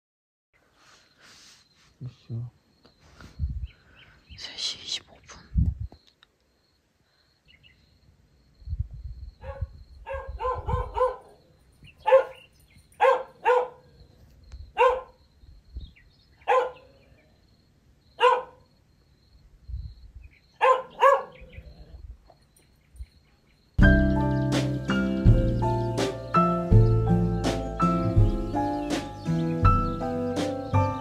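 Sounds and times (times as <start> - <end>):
dog barking: 9.4 - 11.4, 12.0 - 13.9, 14.8 - 15.2, 16.4 - 17.0, 18.2 - 18.6, 20.6 - 21.6.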